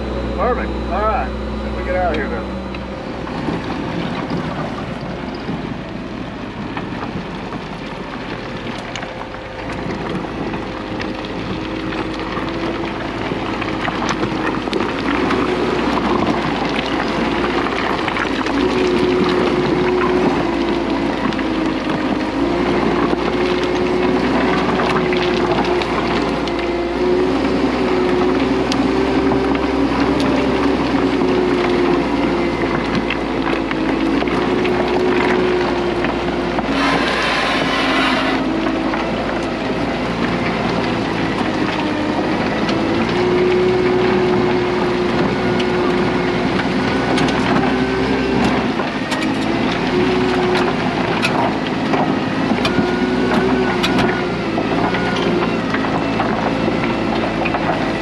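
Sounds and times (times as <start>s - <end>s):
bulldozer diesel engine under load: 0.0s - 58.0s
rocks clattering and scraping: 6.6s - 58.0s.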